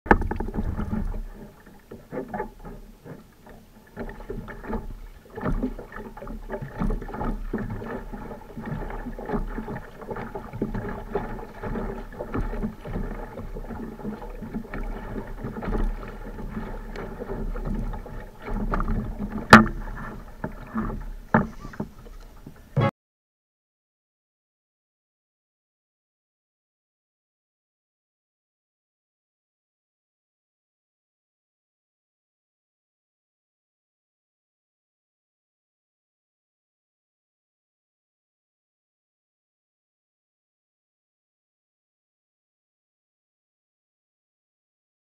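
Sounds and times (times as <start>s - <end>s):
knocks on kayak hull: 0.1s - 1.1s, 18.6s - 20.0s
paddle strokes splashing: 0.1s - 22.9s
water lapping against plastic hull: 0.1s - 22.9s.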